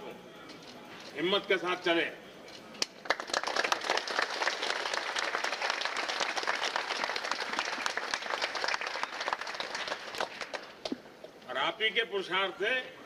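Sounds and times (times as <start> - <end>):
crowd applauding: 2.8 - 11.0.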